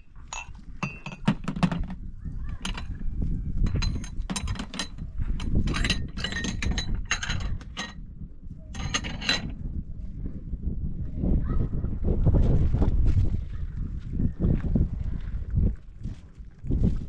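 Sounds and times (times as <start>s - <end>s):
kitchenware clinking and knocking: 0.2s - 2.0s, 2.6s - 3.0s, 3.6s - 8.0s, 8.7s - 9.6s.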